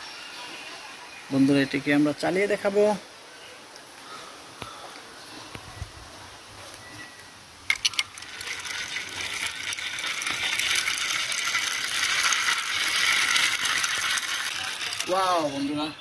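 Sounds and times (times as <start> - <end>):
toy truck clicking on concrete: 7.7 - 15.6
toy wheels grinding rattle: 7.7 - 15.9.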